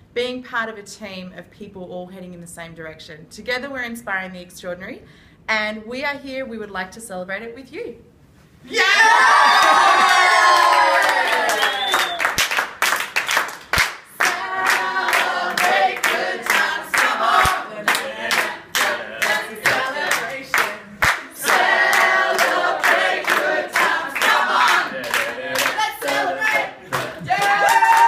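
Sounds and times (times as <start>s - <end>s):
people clapping along: 9.4s - 28.0s
group of people singing: 14.2s - 27.4s.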